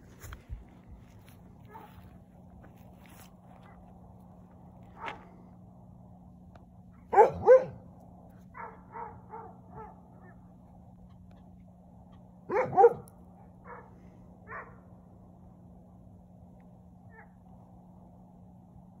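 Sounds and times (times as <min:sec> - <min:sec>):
steady low hum: 0:00.0 - 0:19.0
dog barking: 0:01.7 - 0:02.0, 0:07.1 - 0:07.8, 0:08.5 - 0:10.4, 0:12.5 - 0:14.8.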